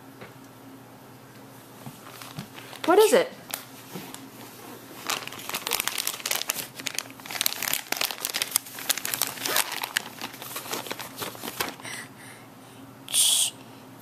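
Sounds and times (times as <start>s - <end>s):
crinkly rustling and crackling: 1.9s - 11.8s.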